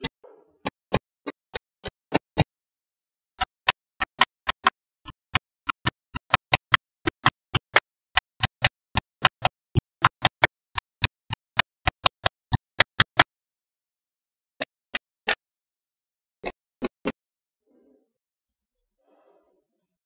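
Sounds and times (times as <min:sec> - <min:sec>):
magnetic balls clicking: 0:03.4 - 0:13.3.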